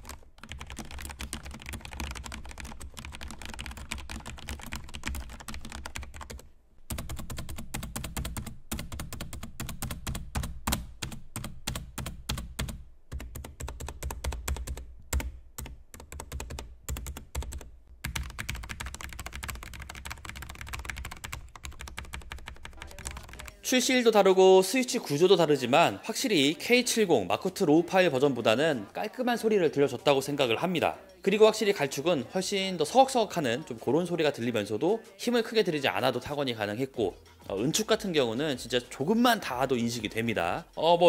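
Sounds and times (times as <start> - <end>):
mechanical keyboard typing: 0.0 - 23.6.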